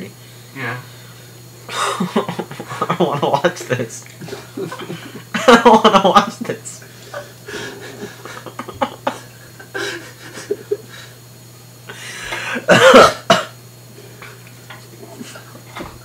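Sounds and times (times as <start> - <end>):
steady low hum: 0.0 - 16.0
man coughing: 1.7 - 10.8, 12.1 - 13.6.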